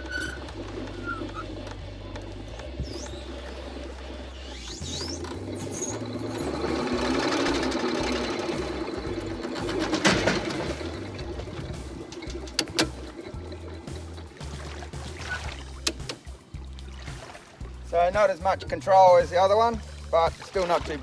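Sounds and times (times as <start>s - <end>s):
electric winch whirring: 0.0s - 16.4s.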